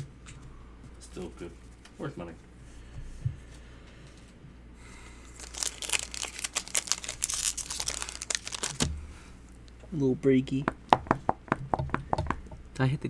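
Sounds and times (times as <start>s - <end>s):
foil wrapper crinkling: 5.3s - 8.9s.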